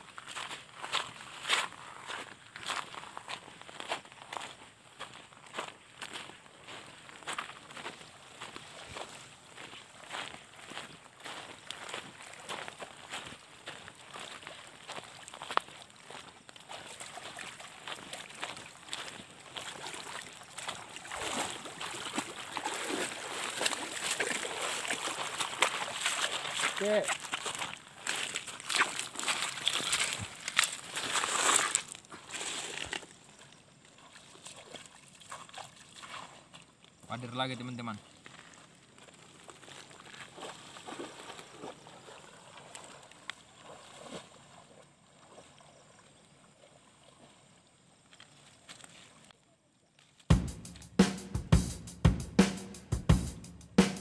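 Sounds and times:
footsteps crunching on gravel: 0:00.0 - 0:33.3, 0:38.1 - 0:41.8
river water flowing: 0:00.0 - 0:36.7, 0:38.1 - 0:49.2
river flowing over stones: 0:17.0 - 0:33.8.

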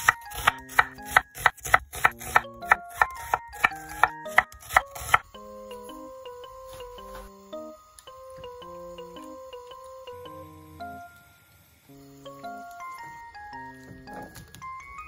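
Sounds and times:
knife chopping on wooden board: 0:00.0 - 0:05.2
background music: 0:00.0 - 0:15.0.

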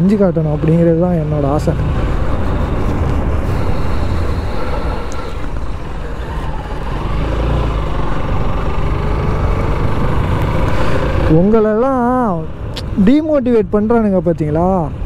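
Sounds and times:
low rumble: 0:00.0 - 0:11.6
faint motorcycle engine: 0:00.0 - 0:13.5
wind and road noise: 0:00.0 - 0:15.0.

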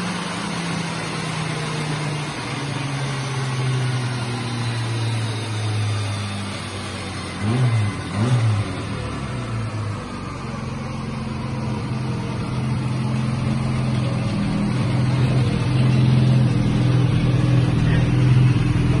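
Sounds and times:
car engine running steadily: 0:00.0 - 0:19.0.

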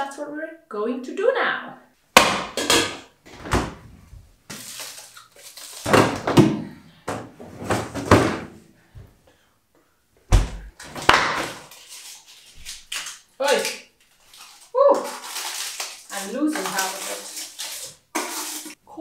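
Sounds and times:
freezer door thumping shut: 0:10.3 - 0:10.6.

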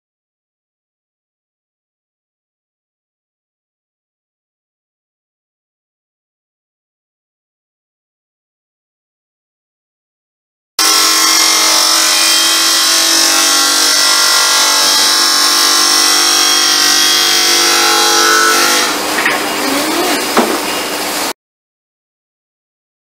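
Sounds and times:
hose-cutting machine whining: 0:10.8 - 0:21.3.

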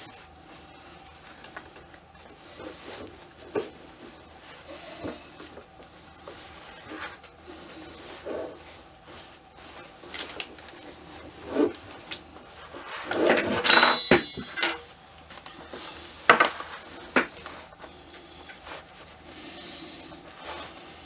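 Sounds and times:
cloth rustling: 0:00.0 - 0:21.0.

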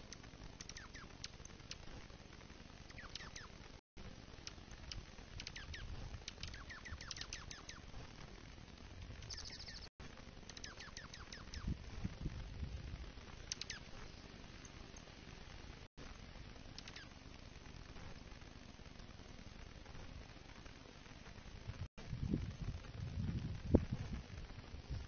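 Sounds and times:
birds twittering: 0:00.6 - 0:01.2, 0:02.9 - 0:03.5, 0:05.4 - 0:07.9, 0:09.2 - 0:09.9, 0:10.5 - 0:11.7, 0:13.5 - 0:15.1
high bird trill: 0:00.6 - 0:01.4, 0:02.9 - 0:03.6, 0:05.4 - 0:07.9, 0:09.2 - 0:09.9, 0:10.5 - 0:11.7, 0:13.4 - 0:14.7.

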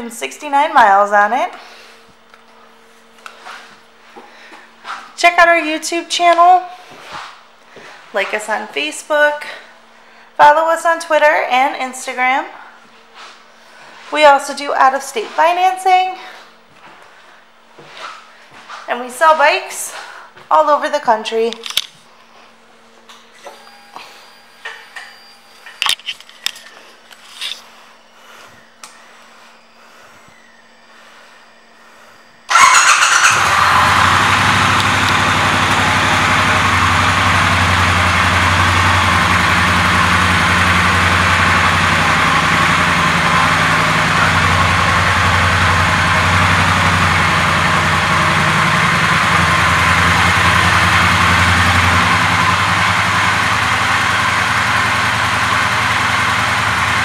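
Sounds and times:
motorcycle engine starting and idling: 0:32.5 - 0:57.0.

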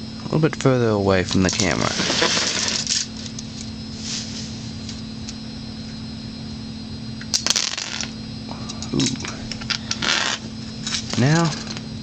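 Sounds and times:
steady low hum: 0:00.0 - 0:12.0
sharp electrical contact clicks: 0:01.3 - 0:03.8, 0:07.2 - 0:11.9.

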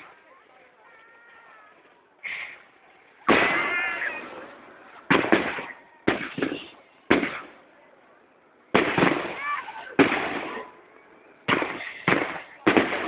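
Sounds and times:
firework shells bursting: 0:05.1 - 0:07.6.

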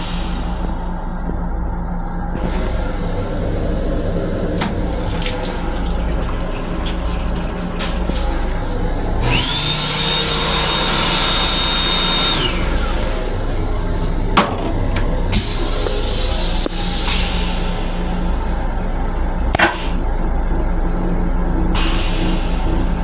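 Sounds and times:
moving train rumble: 0:00.0 - 0:23.0
water running into basin: 0:04.6 - 0:09.0.

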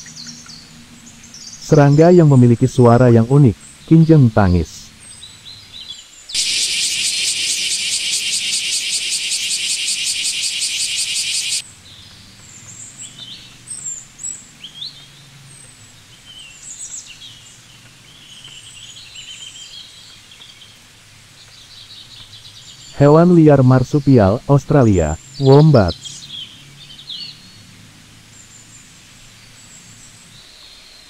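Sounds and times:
small birds chirping: 0:00.0 - 0:31.0
cicada buzzing: 0:06.3 - 0:11.6.

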